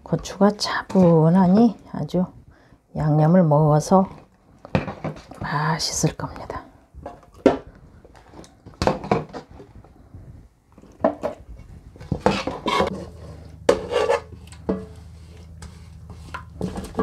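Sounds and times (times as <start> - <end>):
low steady hum: 9.5 - 17.0.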